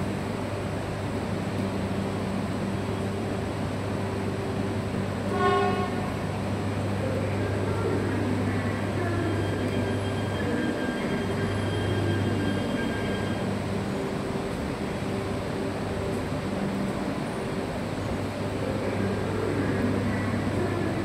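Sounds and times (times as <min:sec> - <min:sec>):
faint steady tones: 0:00.0 - 0:21.0
train rolling with low hum: 0:00.0 - 0:21.0
train horn toot: 0:05.3 - 0:06.2.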